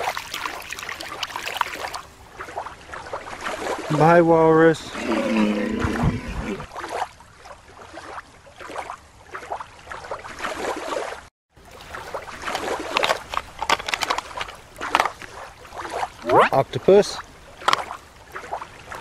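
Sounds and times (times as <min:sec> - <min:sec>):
shallow water splashing: 0:00.0 - 0:19.0
small clicks and spatters: 0:12.3 - 0:15.4, 0:17.6 - 0:18.0.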